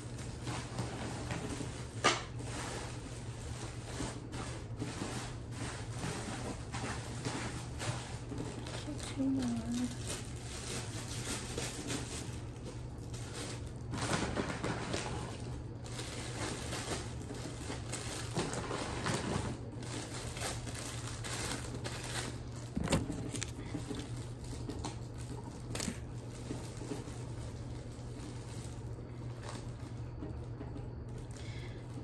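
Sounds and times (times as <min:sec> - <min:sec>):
candy wrappers crinkling: 0:00.0 - 0:32.0.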